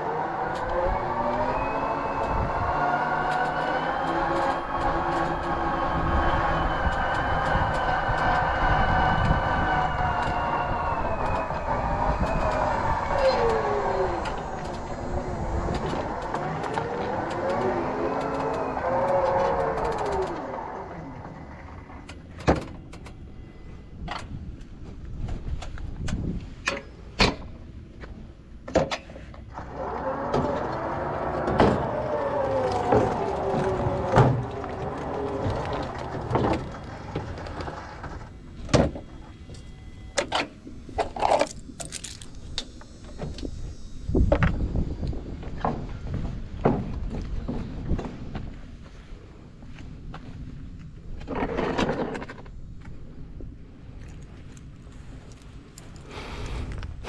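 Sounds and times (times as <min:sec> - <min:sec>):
electric mower motors whining: 0:00.0 - 0:26.2, 0:29.4 - 0:48.4.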